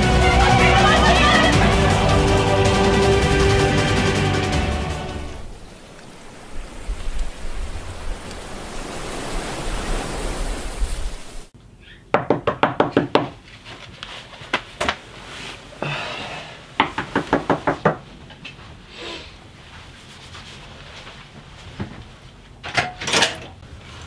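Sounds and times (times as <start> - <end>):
ship's wake rushing: 0.0 - 11.5
wind at sea: 5.4 - 11.9
knocking on a door: 12.1 - 13.4, 16.8 - 18.0.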